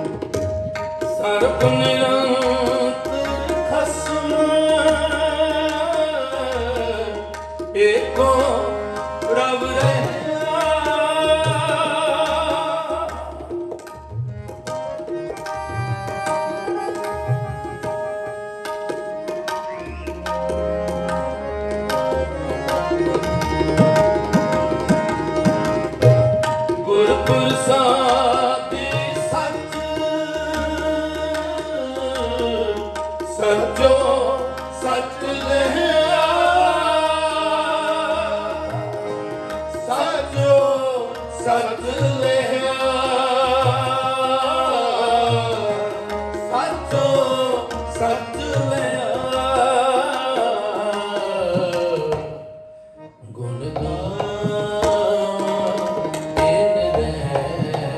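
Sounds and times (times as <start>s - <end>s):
harmonium chords: 0.0s - 57.9s
tabla rhythm: 0.0s - 57.9s
man singing: 1.0s - 13.5s, 26.7s - 52.5s, 53.2s - 57.9s.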